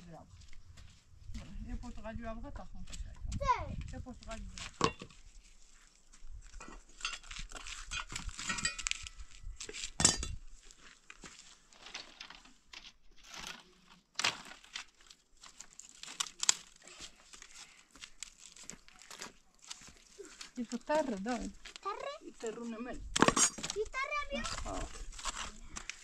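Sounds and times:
dry sticks rustling: 3.9 - 26.0
metal bowl and pot clinking: 7.9 - 9.2, 10.0 - 10.4.

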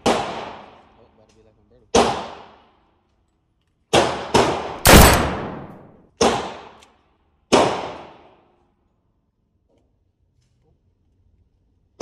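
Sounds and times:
pistol shots echoing: 4.0 - 6.6.

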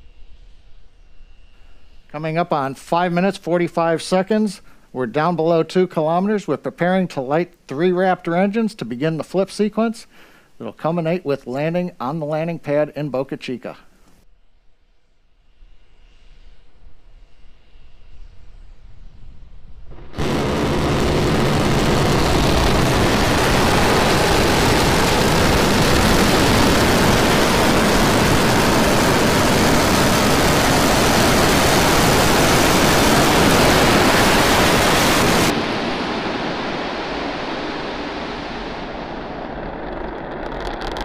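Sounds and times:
low rumble: 15.4 - 41.0
rocket engines roaring: 19.8 - 41.0.

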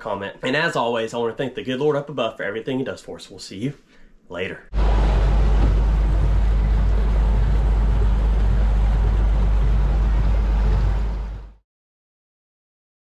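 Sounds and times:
outboard motor running: 4.7 - 11.6
rushing wake water: 4.7 - 11.6
wind on microphone: 4.8 - 11.5.

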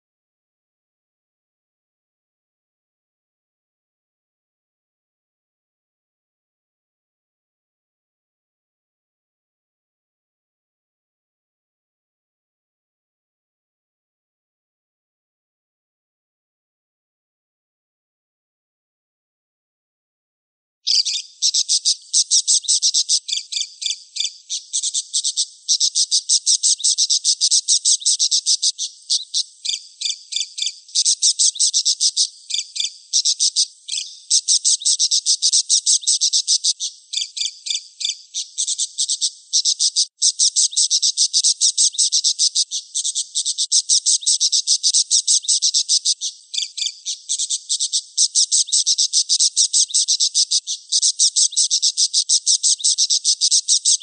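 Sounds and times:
budgerigar chirping: 20.9 - 54.0.

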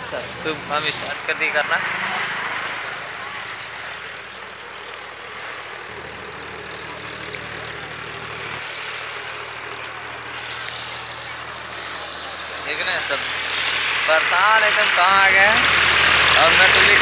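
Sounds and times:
traffic hiss: 0.0 - 17.0
vehicle engine humming: 0.0 - 17.0.

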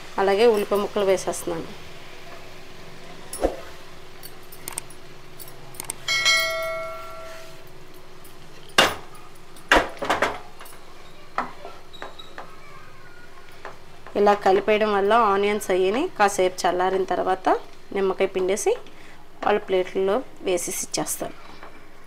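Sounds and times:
metallic clink ringing: 4.2 - 9.7.

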